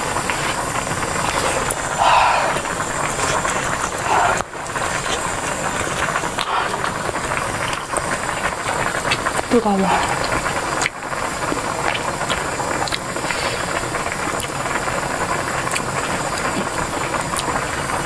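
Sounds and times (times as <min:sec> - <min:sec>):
stew bubbling at a boil: 0:00.0 - 0:18.0
puffs of breath: 0:01.3 - 0:04.6, 0:06.3 - 0:07.1, 0:13.2 - 0:13.8.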